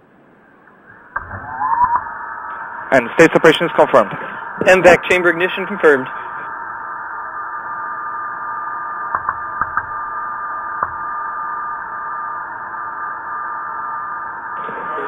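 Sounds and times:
radio channel hiss with thin tone: 0.0 - 15.0
sharp clicks: 9.1 - 9.9.

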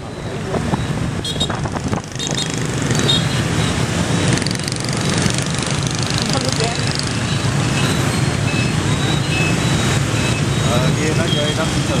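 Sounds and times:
motorbike and car engines: 0.0 - 12.0
short high beeps: 7.2 - 11.4.

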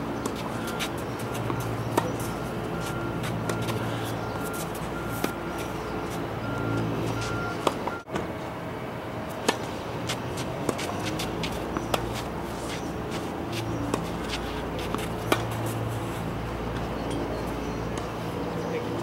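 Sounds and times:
racket hitting tennis ball: 0.2 - 5.9, 7.0 - 8.3, 9.4 - 16.0.

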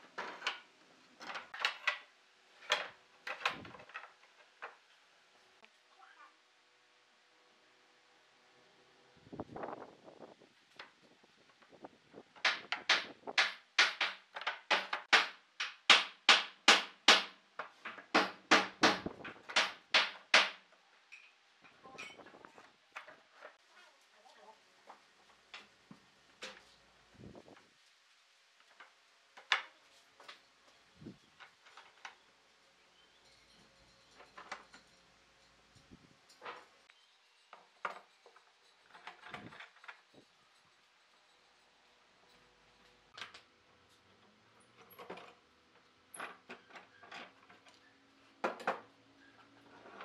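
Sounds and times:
wooden boards knocking: 12.4 - 17.3
knocks and clinks of clamp and boards: 12.4 - 23.6, 33.2 - 35.6.

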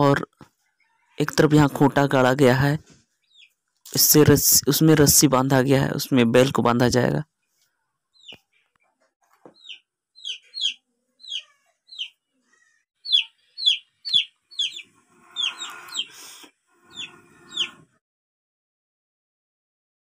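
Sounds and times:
chick peeping: 3.2 - 3.6, 8.2 - 8.9, 9.5 - 18.0.

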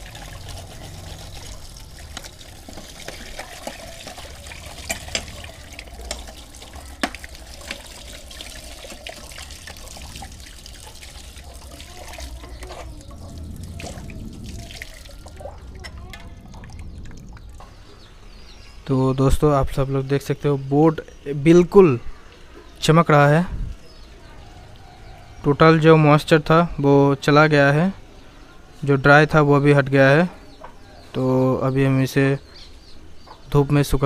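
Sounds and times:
tap water splashing into basin: 0.0 - 13.2.

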